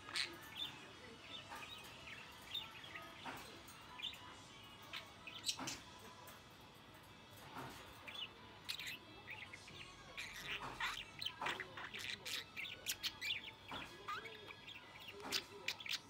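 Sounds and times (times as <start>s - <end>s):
budgerigar chattering: 10.2s - 16.0s.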